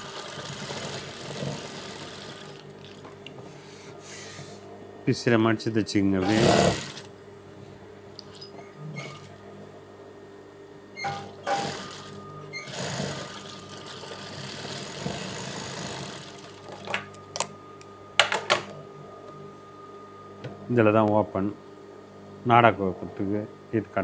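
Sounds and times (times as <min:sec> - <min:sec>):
sewing machine stitching: 0:00.0 - 0:02.6, 0:06.2 - 0:07.1, 0:09.0 - 0:09.3, 0:11.0 - 0:16.8
sewing machine motor humming: 0:00.0 - 0:03.1, 0:06.2 - 0:07.1, 0:08.3 - 0:09.4, 0:11.0 - 0:16.9.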